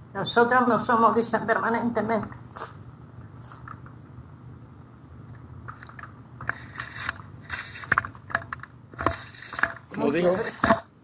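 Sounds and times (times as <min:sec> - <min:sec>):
clicks and crackles: 0:05.3 - 0:10.0.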